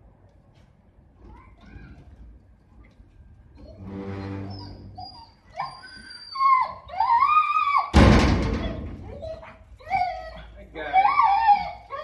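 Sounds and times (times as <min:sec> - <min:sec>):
dogs whining and howling: 0:03.6 - 0:12.0.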